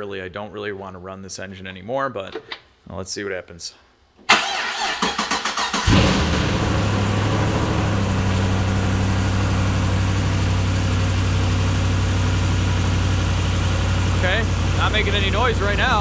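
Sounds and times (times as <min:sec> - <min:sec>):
car starter cranking: 0:04.3 - 0:08.6
car engine idling: 0:05.8 - 0:16.0.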